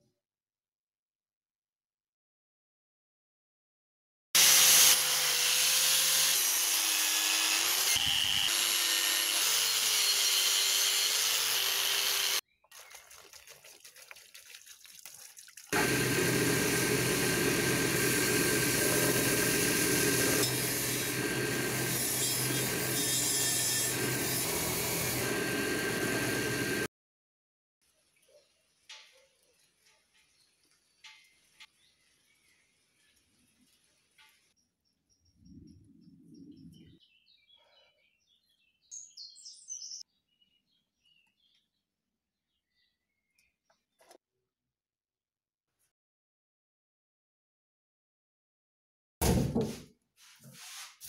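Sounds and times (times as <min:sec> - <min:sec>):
power tool wheel whining: 0:04.4 - 0:12.4, 0:15.8 - 0:26.9
angle grinder wire brush on metal: 0:15.8 - 0:26.9.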